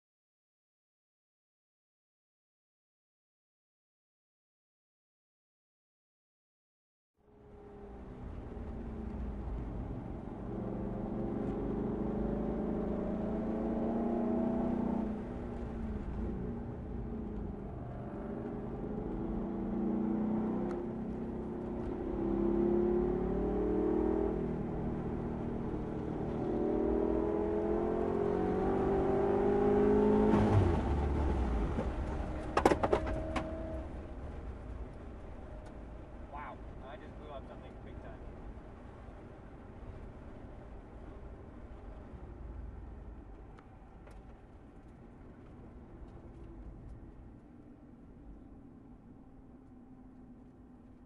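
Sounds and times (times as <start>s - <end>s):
road and wind noise: 7.2s - 51.0s
car engine from inside cabin: 7.5s - 34.4s
low engine rumble: 30.4s - 51.0s.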